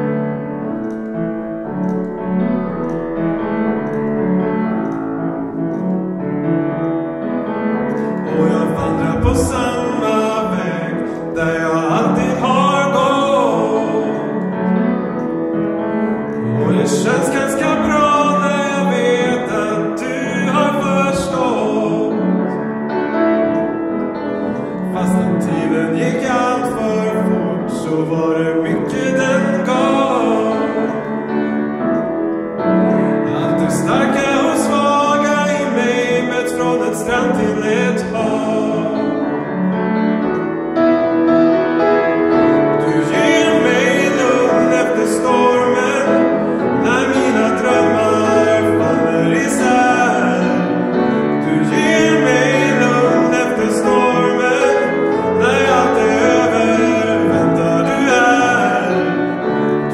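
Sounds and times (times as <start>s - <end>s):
piano chords: 0.0s - 59.9s
man singing into a microphone: 7.9s - 15.4s, 16.1s - 23.7s, 24.5s - 31.8s, 32.8s - 39.8s, 42.0s - 59.9s.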